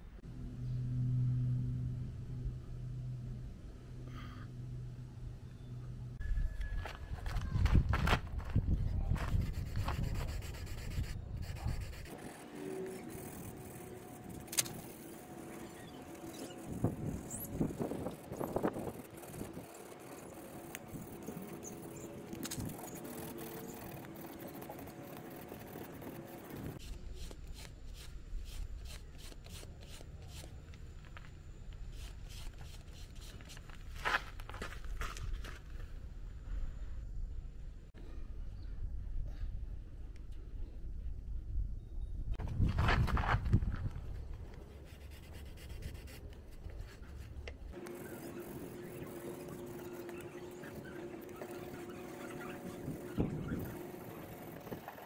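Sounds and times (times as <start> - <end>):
sandpaper rubbing on plastic: 9.2 - 30.5, 31.9 - 33.8, 44.8 - 54.6.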